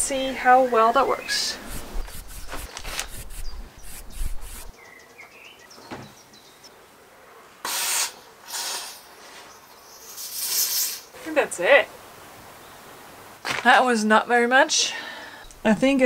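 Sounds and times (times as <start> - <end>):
bird chirping: 0.8 - 6.8
aerosol foam can hissing: 1.6 - 4.7, 7.7 - 9.0, 10.2 - 11.0.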